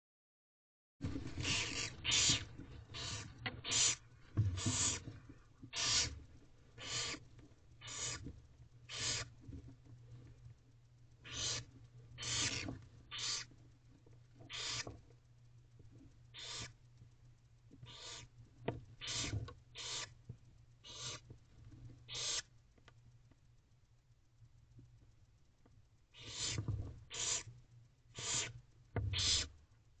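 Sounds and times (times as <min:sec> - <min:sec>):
owls hissing: 0:01.3 - 0:04.0, 0:04.6 - 0:05.0, 0:05.7 - 0:06.2, 0:06.8 - 0:07.2, 0:07.8 - 0:08.2, 0:08.9 - 0:09.3, 0:11.2 - 0:13.5, 0:14.5 - 0:14.9, 0:16.3 - 0:16.7, 0:17.9 - 0:18.3, 0:19.0 - 0:20.1, 0:20.8 - 0:21.2, 0:22.1 - 0:22.5, 0:26.2 - 0:27.5, 0:28.2 - 0:28.5, 0:29.1 - 0:29.5.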